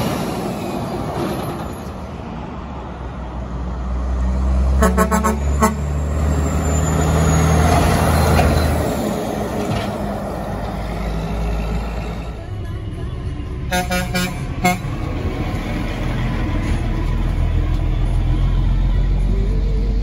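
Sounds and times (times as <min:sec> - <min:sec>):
truck engine rumbling past: 0:00.0 - 0:20.0
truck air horn toots: 0:04.7 - 0:07.3, 0:13.7 - 0:15.1.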